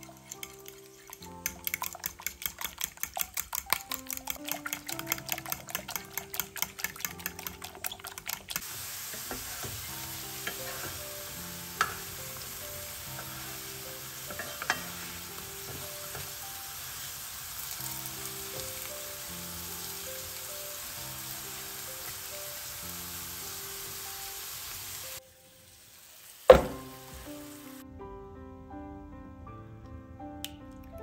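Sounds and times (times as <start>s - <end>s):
potato slices sizzling in oil: 0.0s - 2.2s, 4.4s - 27.8s
eggs beaten in a glass bowl: 0.0s - 8.6s
spatula clicking against pan: 0.1s - 8.6s.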